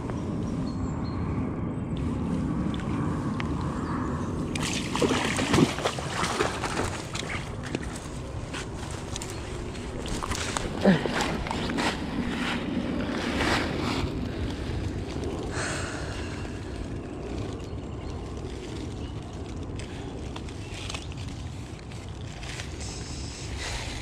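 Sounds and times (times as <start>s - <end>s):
wind rumble on microphone: 0.0s - 24.0s.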